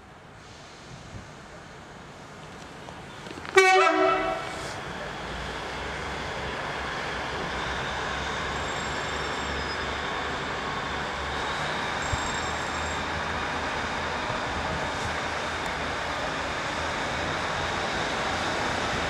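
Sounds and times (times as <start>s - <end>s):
train two-tone horn: 3.6s - 4.6s.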